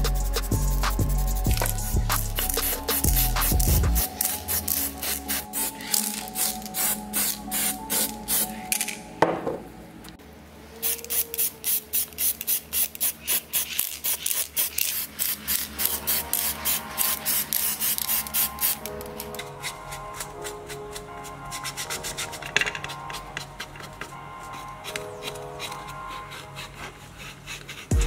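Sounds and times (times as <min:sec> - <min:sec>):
spray paint hissing bursts: 0:00.0 - 0:08.6, 0:10.8 - 0:18.9
background music: 0:00.0 - 0:10.5, 0:15.5 - 0:28.0.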